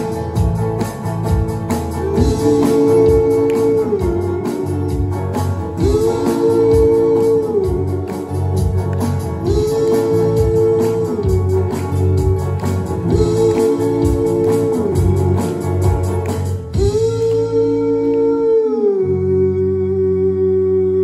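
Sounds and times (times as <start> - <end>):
folk-rock band playing: 0.0 - 19.5
bass line: 0.0 - 21.0
bending held guitar notes: 0.0 - 21.0.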